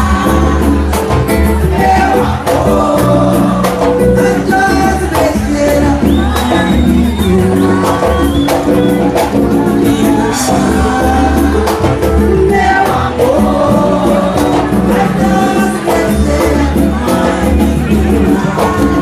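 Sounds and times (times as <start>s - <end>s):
acoustic guitar: 0.0s - 19.0s
electric bass: 0.0s - 19.0s
percussion: 0.0s - 19.0s
woman singing: 0.0s - 19.0s.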